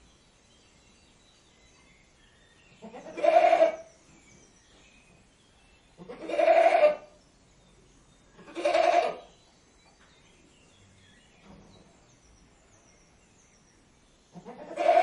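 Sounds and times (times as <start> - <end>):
goat bleating: 2.8 - 3.8, 6.0 - 7.1, 8.4 - 9.2, 14.4 - 15.0.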